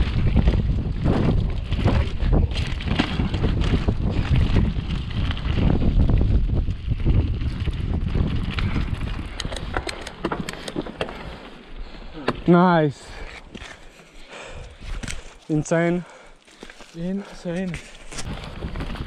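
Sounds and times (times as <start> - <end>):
bike frame rattle: 0.0 - 11.5
bike clicks and rattles: 0.0 - 12.6, 13.2 - 15.5, 16.5 - 19.0
wind buffeting microphone: 0.0 - 13.6, 17.2 - 19.0
bike tyre rumble: 0.0 - 19.0.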